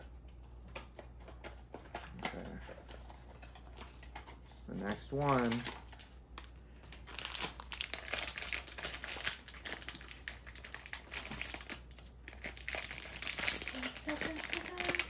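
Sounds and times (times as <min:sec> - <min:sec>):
foil pouch crinkling: 0:05.1 - 0:15.0.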